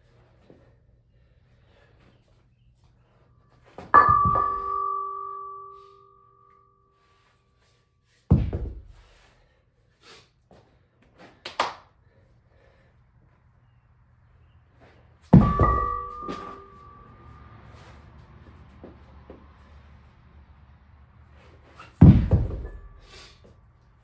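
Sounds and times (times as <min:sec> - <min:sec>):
ringing metal clang: 0:03.8 - 0:06.8, 0:15.3 - 0:17.6, 0:22.0 - 0:23.2
dumbbells shuffled on concrete: 0:07.0 - 0:11.4, 0:14.3 - 0:24.0
deep thud: 0:08.3 - 0:08.9, 0:15.3 - 0:16.8, 0:22.0 - 0:22.9.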